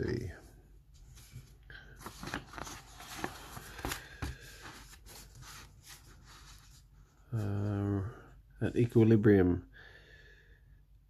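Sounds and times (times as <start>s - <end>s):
paper rustling on a desk: 1.0s - 6.9s.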